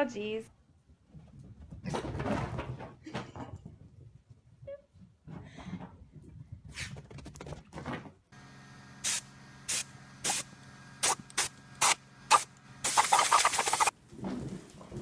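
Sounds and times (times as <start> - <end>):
hose nozzle squirting water: 11.0 - 13.9.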